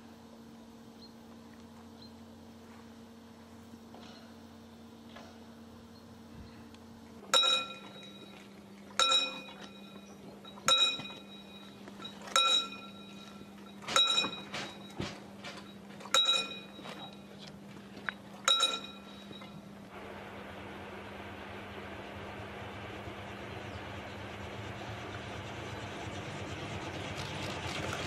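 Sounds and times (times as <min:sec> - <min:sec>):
low hum: 0:00.0 - 0:28.0
level-crossing bell ringing: 0:09.0 - 0:15.0.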